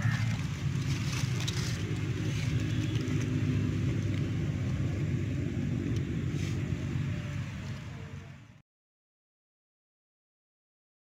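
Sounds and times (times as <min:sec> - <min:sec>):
aluminium foil crinkling and tearing: 0:00.0 - 0:04.3
steady low rumble: 0:00.0 - 0:08.6.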